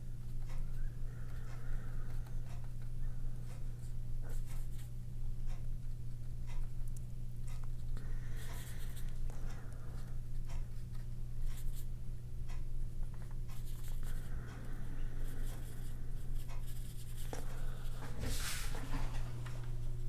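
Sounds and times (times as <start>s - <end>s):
low hum: 0.0s - 20.0s
paintbrush strokes on paper: 16.6s - 19.2s.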